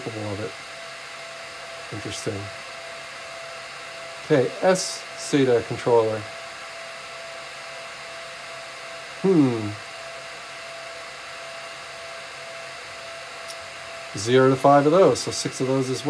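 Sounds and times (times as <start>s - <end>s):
computer fans whining: 0.0s - 16.0s
short falling vocal sound: 9.2s - 9.8s.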